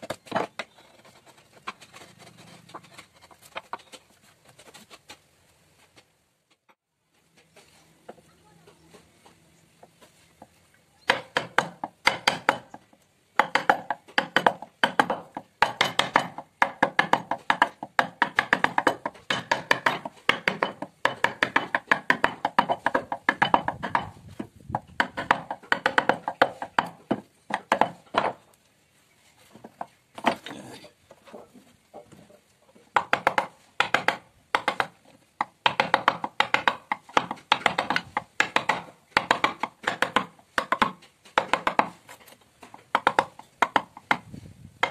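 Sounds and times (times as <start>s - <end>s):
mallet striking chisel into wood: 11.1s - 12.8s, 13.4s - 28.4s, 33.0s - 42.0s, 42.9s - 44.9s.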